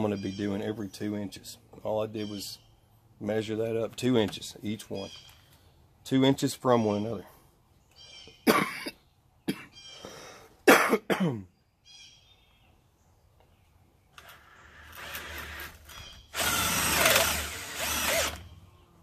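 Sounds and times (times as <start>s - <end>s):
cordless drill boring into wood: 14.2s - 18.5s.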